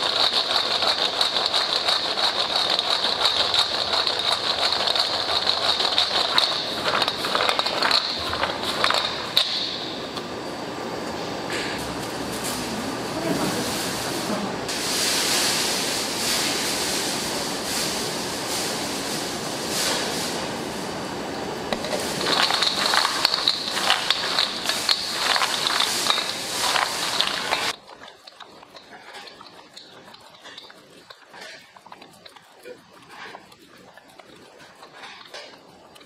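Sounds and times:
spatula scraping metal bowl: 0.0 - 9.4, 21.7 - 36.0
kitchen background noise: 0.0 - 36.0.

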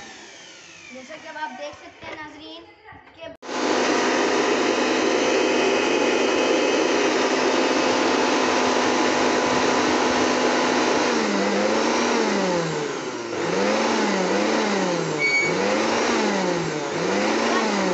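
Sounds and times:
electric air blower whine: 0.0 - 1.5, 3.4 - 17.9
brief high squeak: 15.2 - 15.6.

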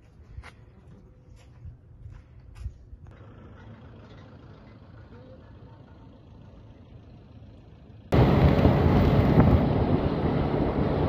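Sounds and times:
faint outdoor background noise: 0.0 - 11.0
vehicle noise: 0.4 - 11.0
wind buffeting microphone: 8.1 - 11.0.

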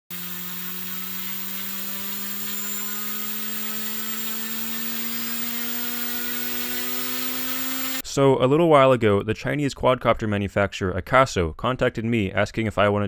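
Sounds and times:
quadcopter motors whining: 0.0 - 8.0.

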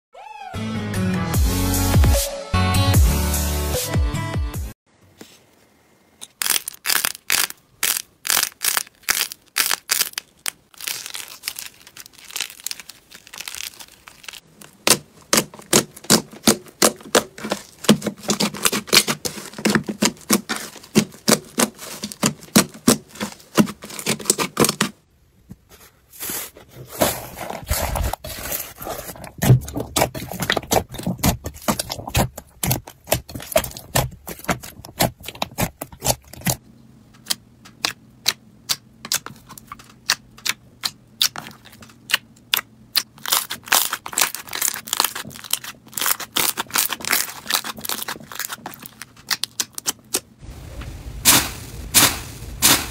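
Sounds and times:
sticky clicks and popping crackles: 6.2 - 24.9, 37.2 - 50.3
hands kneading slime: 6.4 - 25.0, 26.2 - 36.6, 37.2 - 50.3.

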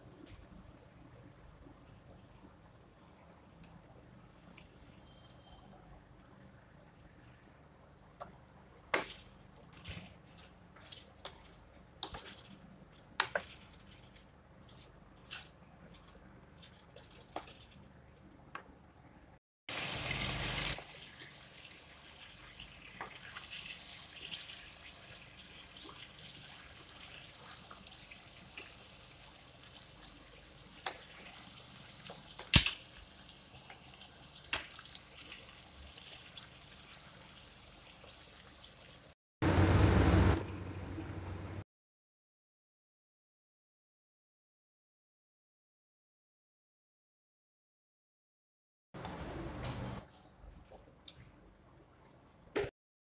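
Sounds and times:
food sizzling in a pan: 19.7 - 39.6.

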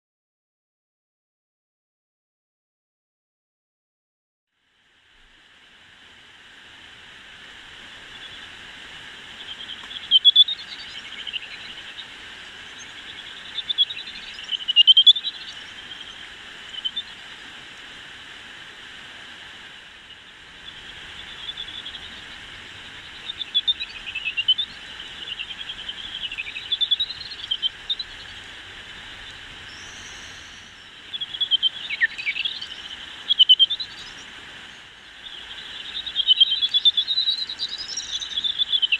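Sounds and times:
bat echolocation chirps: 7.9 - 8.6, 9.3 - 17.3, 19.8 - 38.9
bat detector hiss: 24.5 - 30.9.

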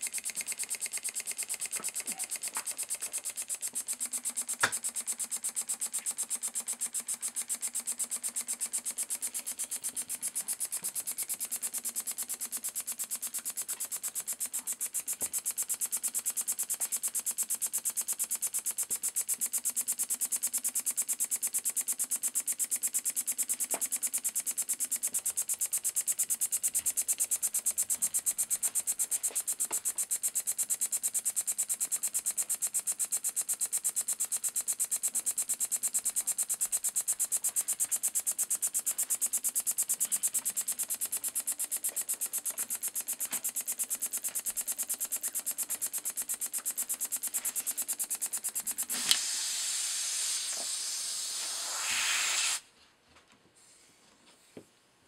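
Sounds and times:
engine puffing hiss of air: 48.9 - 52.6.

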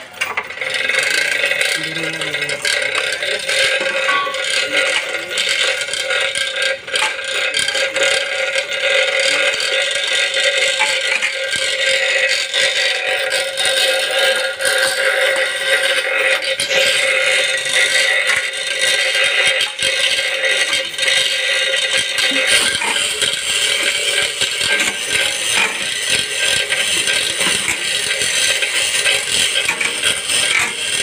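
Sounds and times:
steady droning tone: 0.0 - 31.0.

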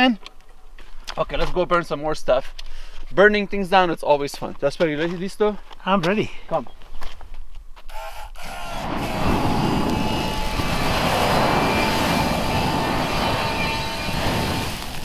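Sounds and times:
flamethrower jet rushing: 7.9 - 15.0
bush burning: 8.7 - 15.0.

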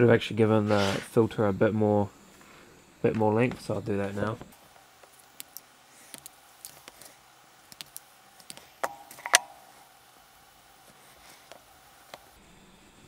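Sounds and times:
wire strippers clicking and snipping: 5.0 - 7.1, 7.7 - 9.8.

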